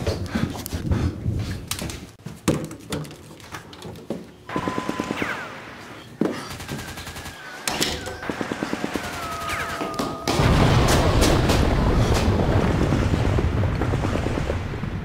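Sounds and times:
falling bomb whistle: 9.0 - 11.0
loud explosion rumbling: 10.4 - 15.0.

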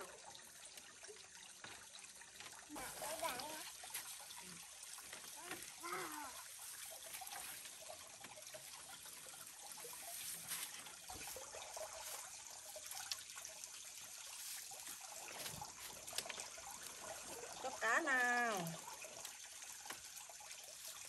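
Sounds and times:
water trickling into pond: 0.0 - 21.0
grass rustling: 5.2 - 7.9, 8.6 - 12.4.

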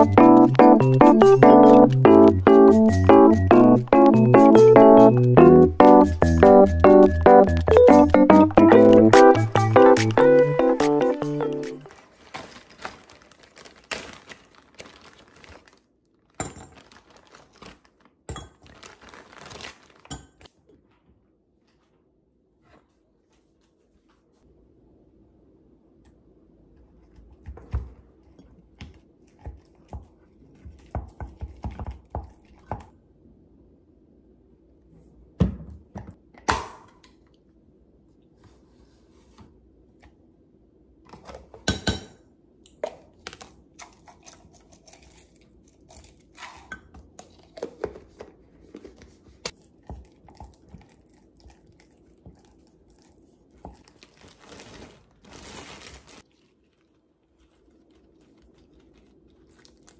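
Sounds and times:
plastic bag crinkling: 11.8 - 20.5, 53.6 - 59.9.

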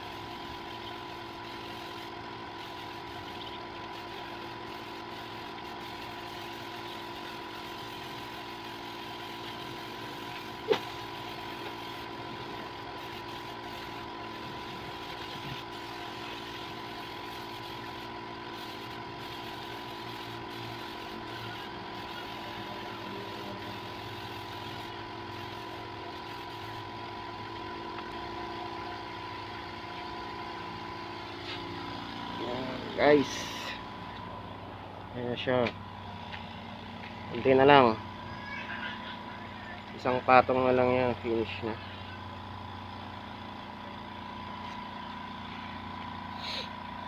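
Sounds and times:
air compressor humming: 0.0 - 47.0.

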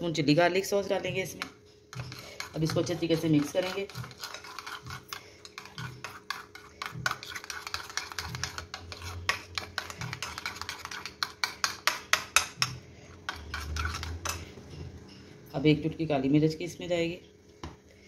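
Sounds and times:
spoon scraping a bowl: 1.3 - 15.3.

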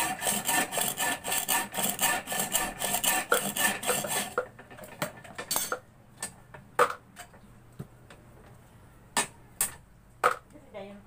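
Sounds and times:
steel rod rasping on wood: 0.0 - 4.4.

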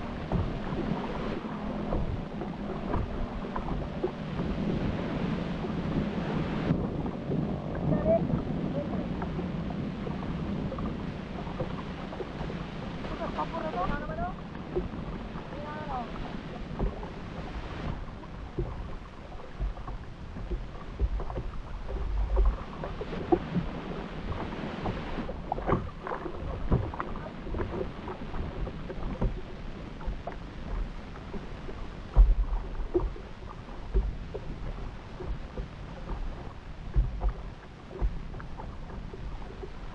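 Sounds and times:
water lapping against boat hull: 0.0 - 39.9
wind buffeting microphone: 0.0 - 39.9
small splashes and knocks: 10.7 - 39.9.

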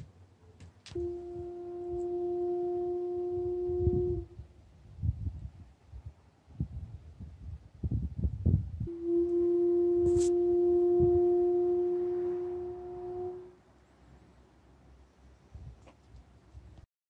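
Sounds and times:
steady low hum: 0.0 - 5.8, 8.7 - 15.7.

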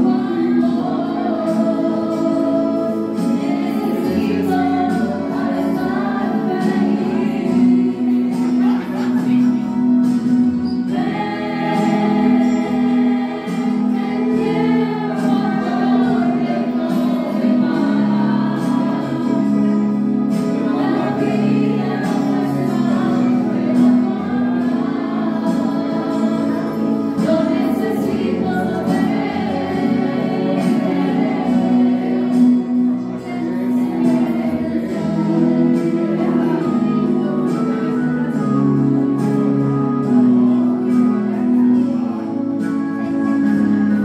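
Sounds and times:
woman singing into microphone: 0.0 - 9.6, 10.9 - 39.4
instrumental accompaniment: 0.0 - 44.0.

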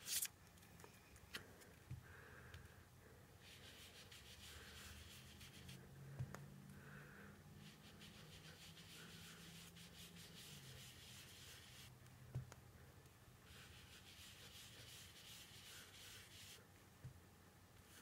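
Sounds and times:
brush scrubbing on card: 3.4 - 5.8, 7.6 - 12.0, 13.4 - 16.6.

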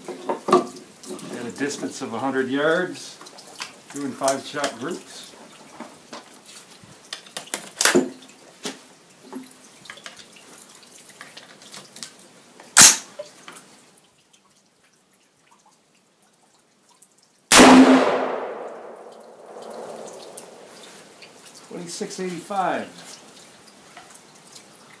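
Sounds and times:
rifle shots with echo: 17.5 - 20.7.

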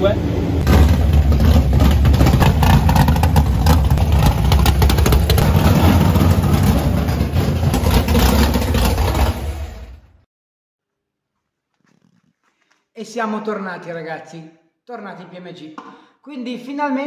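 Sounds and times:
drag car engine running: 0.0 - 10.2.

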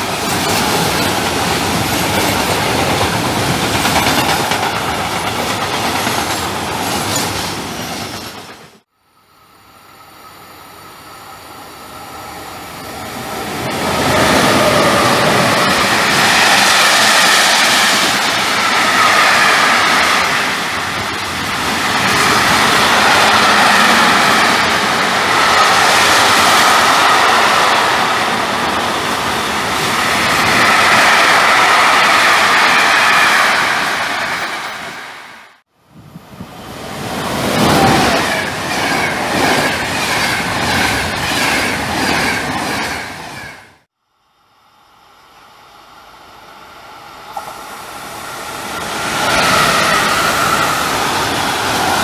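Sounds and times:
wheels rushing on rail: 0.0 - 43.9, 45.0 - 52.0
freight train passing: 0.0 - 52.0.

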